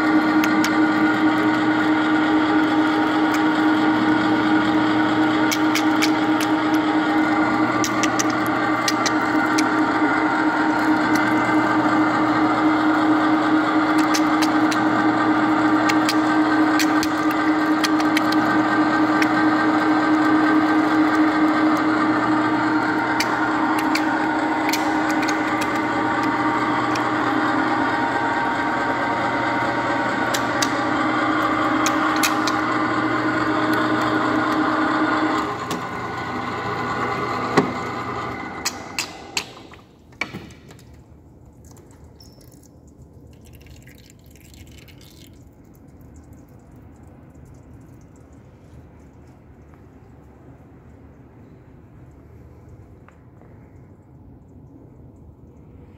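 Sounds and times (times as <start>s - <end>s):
threading machine motor drone: 0.0s - 40.9s
sharp clicks: 5.4s - 6.9s, 7.7s - 9.9s, 23.1s - 27.4s, 30.2s - 34.7s.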